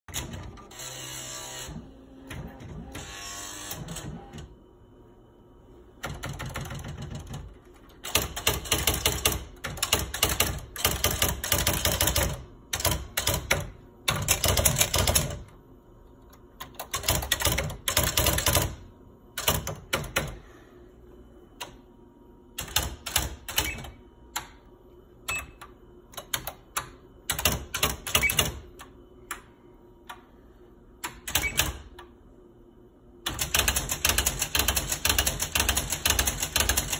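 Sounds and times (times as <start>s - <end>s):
typewriter print strikes: 6.0s - 15.5s, 27.3s - 28.8s, 31.1s - 32.0s, 33.3s - 36.9s.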